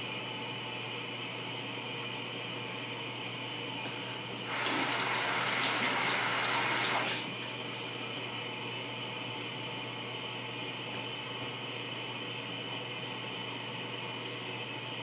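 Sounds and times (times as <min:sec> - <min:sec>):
razor rinsed under water: 0:04.5 - 0:07.3
sink tap running: 0:04.5 - 0:07.3.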